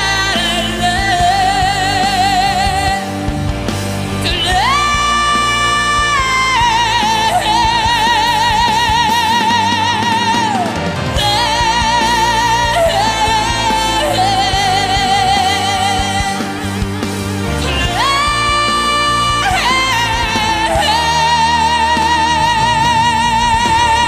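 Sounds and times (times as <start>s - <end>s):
ballad with backing band: 0.0s - 24.0s.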